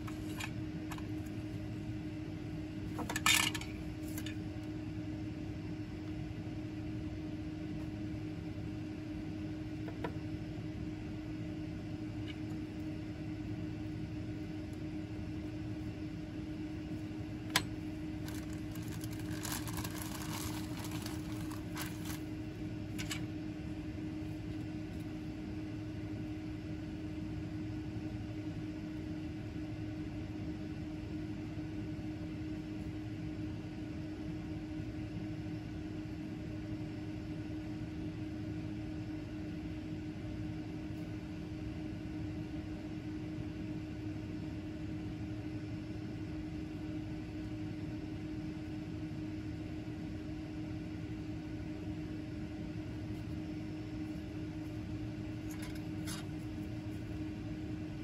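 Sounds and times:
ventilation hum: 0.0s - 58.0s
tool set down on bench: 3.0s - 4.4s, 23.0s - 23.2s
plastic bag crinkling: 18.2s - 22.3s.

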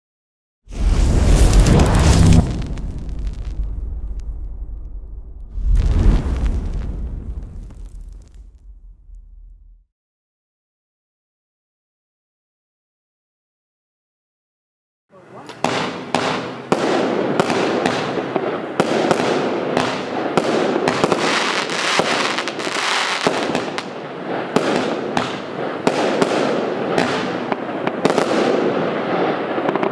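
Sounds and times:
fireworks reports: 0.7s - 4.3s, 15.1s - 29.9s
fireworks crackling: 0.7s - 9.8s, 15.1s - 29.9s.

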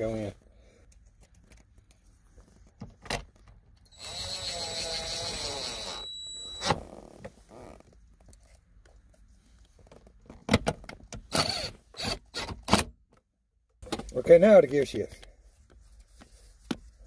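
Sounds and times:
screwdriver whine: 3.9s - 6.8s, 11.3s - 12.5s.

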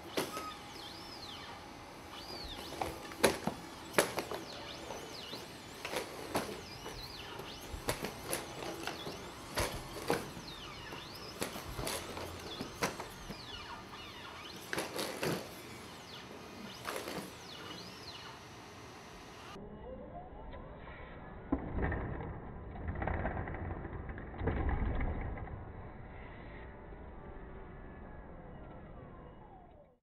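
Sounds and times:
hydraulic actuators whining: 0.0s - 19.6s.

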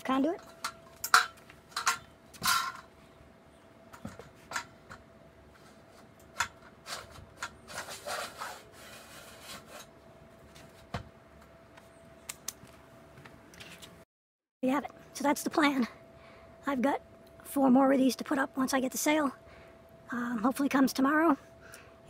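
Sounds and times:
metal rubbing and scraping: 5.5s - 10.0s
metal scraping on metal: 5.6s - 10.0s.

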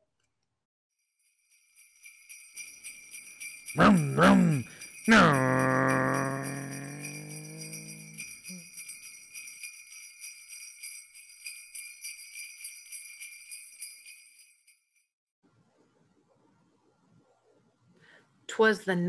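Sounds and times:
jingle bells shaking: 1.2s - 15.0s.

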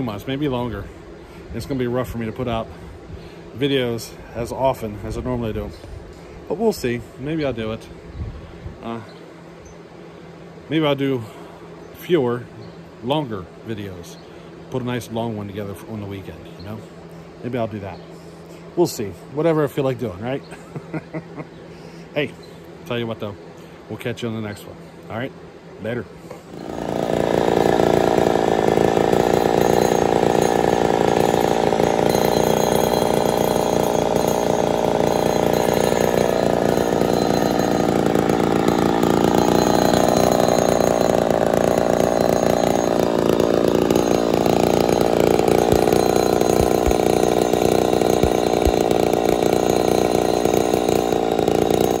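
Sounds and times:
chainsaw idling: 0.0s - 7.8s, 26.3s - 52.0s.

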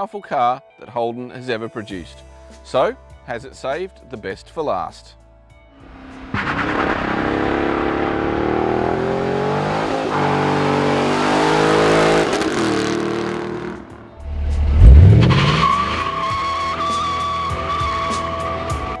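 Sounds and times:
car engine revving: 5.8s - 17.0s
tyre squeal: 15.2s - 18.4s.

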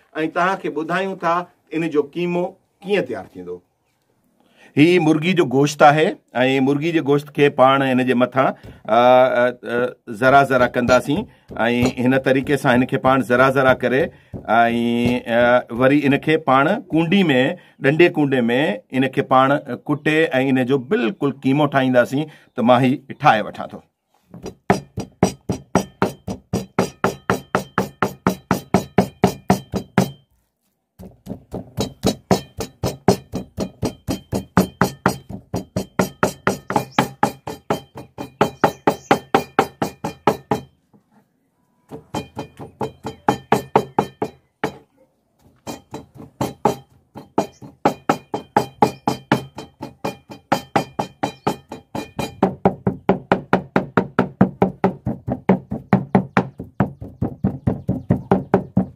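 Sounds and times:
knife chopping on wooden board: 10.6s - 16.2s, 24.3s - 30.2s, 31.0s - 40.7s, 45.6s - 56.5s.

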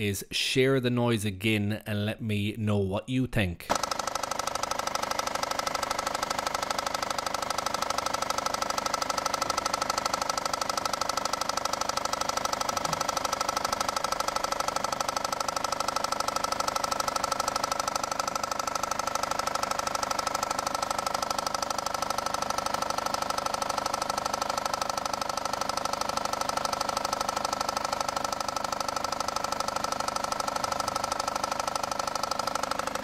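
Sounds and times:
engine running with deep knock: 3.7s - 16.4s.

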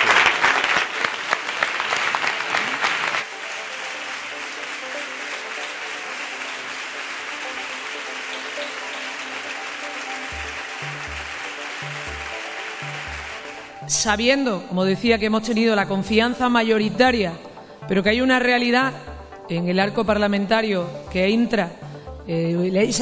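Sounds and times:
crowd applauding: 0.0s - 13.9s
background music with held notes: 3.2s - 23.0s.

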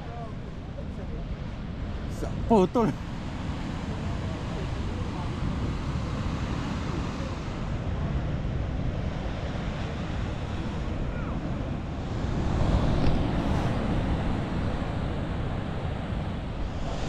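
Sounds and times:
ocean surf against pier: 0.0s - 17.0s
wind on microphone: 3.4s - 17.0s.

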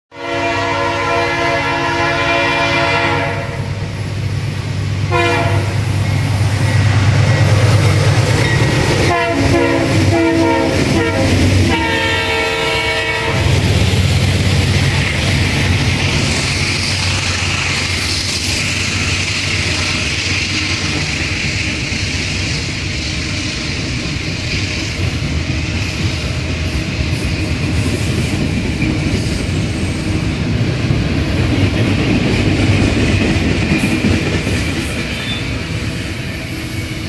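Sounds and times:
locomotive air horn blasts: 0.1s - 3.8s, 5.1s - 5.9s, 9.0s - 13.6s
rail clatter: 3.8s - 36.8s.

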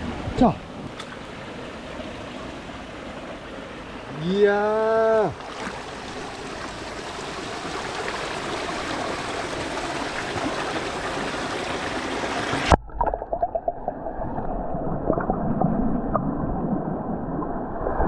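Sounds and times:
stream water rushing over rocks: 0.0s - 12.8s
underwater gurgling: 5.4s - 18.0s.

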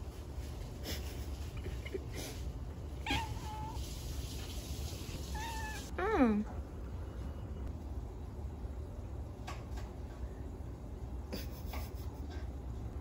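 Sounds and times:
cat meowing: 3.0s - 3.8s, 5.3s - 5.9s.

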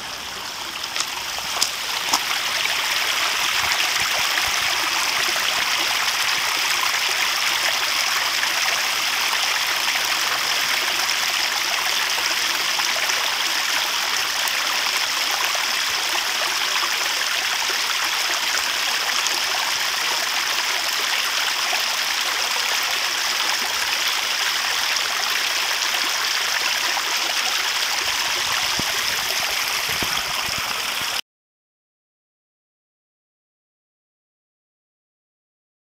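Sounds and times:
waterfall splashing into pond: 0.0s - 31.2s.

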